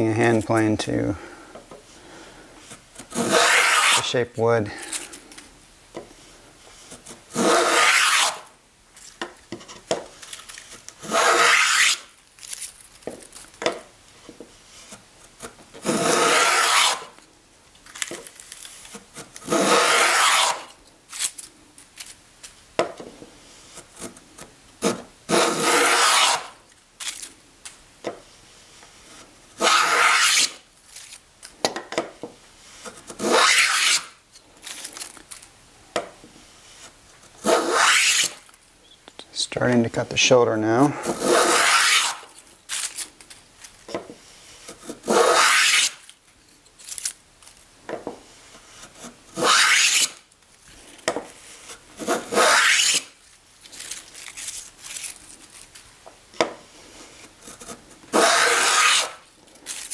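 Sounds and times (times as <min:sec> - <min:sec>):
plane rasping through wood: 0:03.1 - 0:04.1, 0:07.3 - 0:08.4, 0:11.0 - 0:12.0, 0:15.8 - 0:17.0, 0:19.5 - 0:20.6, 0:24.8 - 0:26.5, 0:29.6 - 0:30.5, 0:33.1 - 0:34.1, 0:37.4 - 0:38.4, 0:41.0 - 0:42.2, 0:44.9 - 0:45.9, 0:49.4 - 0:50.1, 0:52.0 - 0:53.0, 0:57.5 - 0:59.2.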